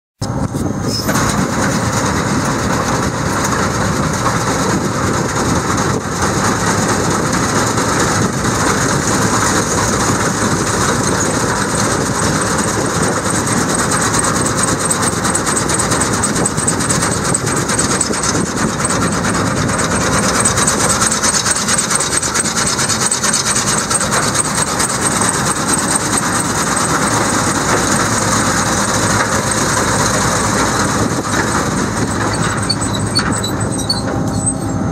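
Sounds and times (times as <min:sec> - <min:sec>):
mechanical clatter and rasp: 0:00.8 - 0:34.9
fast high ticking: 0:09.1 - 0:31.0.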